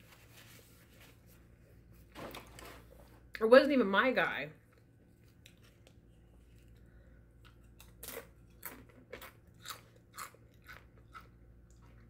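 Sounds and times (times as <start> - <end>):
chewing crunchy chips: 5.2 - 12.0.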